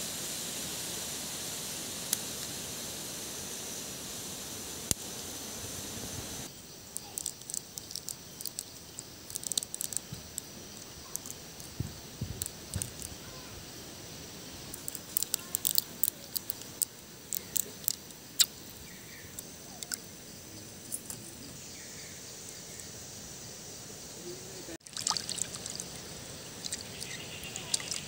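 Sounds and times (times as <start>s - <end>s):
peppercorns clicking into bowl: 7.0s - 10.5s, 12.4s - 13.2s, 14.8s - 18.0s.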